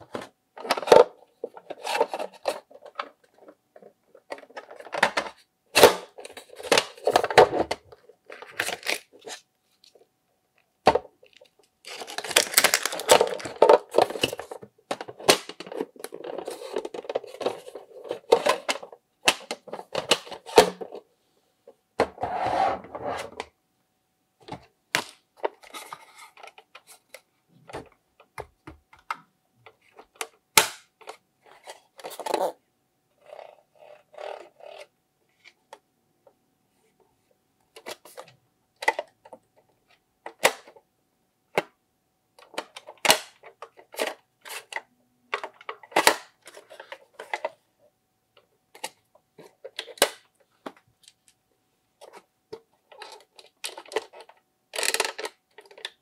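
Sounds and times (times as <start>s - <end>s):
plastic rustling and scraping: 0.0s - 10.1s, 11.2s - 21.1s, 25.4s - 27.9s, 42.5s - 47.6s, 52.0s - 56.0s.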